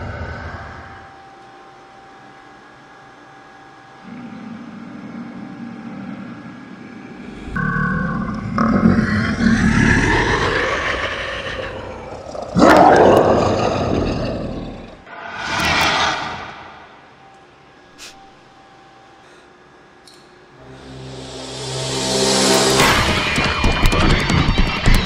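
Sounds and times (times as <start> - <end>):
monster roaring: 7.2 - 16.9.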